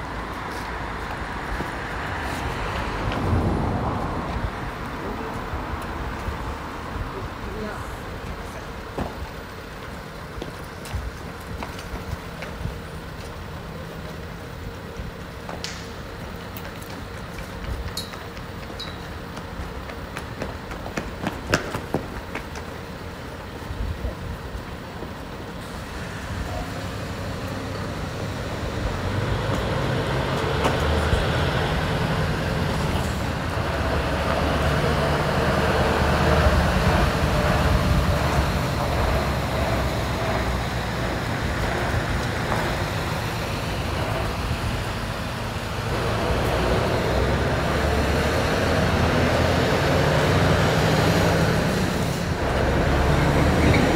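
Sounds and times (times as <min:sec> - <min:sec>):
diesel truck engine: 0:00.0 - 0:53.9.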